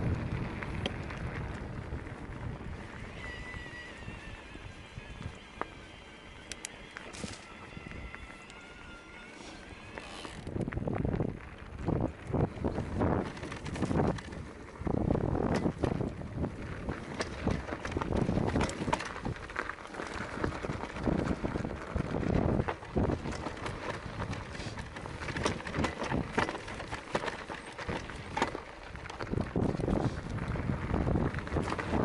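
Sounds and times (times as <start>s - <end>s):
wind rumble on microphone: 0.0s - 8.5s, 9.8s - 32.0s
tyres crunching over gravel: 0.0s - 32.0s
bike rattling clicks and knocks: 9.9s - 32.0s.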